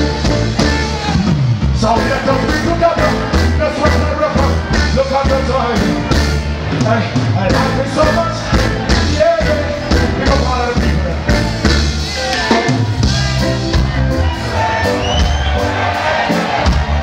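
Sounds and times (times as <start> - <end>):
crowd noise: 0.0 - 17.0
live reggae band playing: 0.0 - 17.0.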